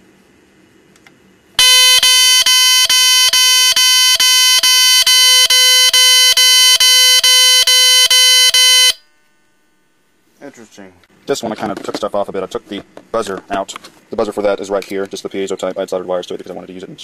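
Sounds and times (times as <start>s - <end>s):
harsh buzzing alarm tone: 1.6s - 10.1s.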